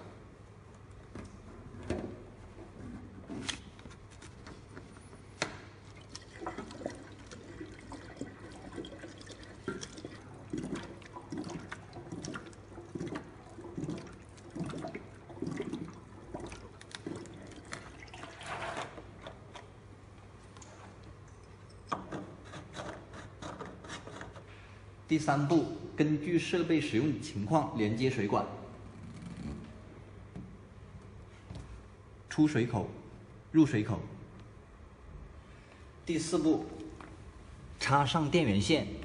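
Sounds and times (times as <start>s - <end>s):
water glugging through funnel: 5.8s - 19.8s.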